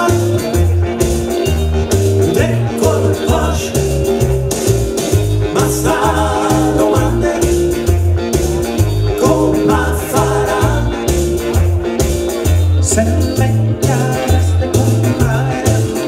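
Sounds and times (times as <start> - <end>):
man singing into a microphone: 0.0 - 0.6, 2.3 - 4.0, 5.5 - 7.9, 9.2 - 11.2, 12.8 - 16.0
backing music with bouncy bass: 0.0 - 16.0.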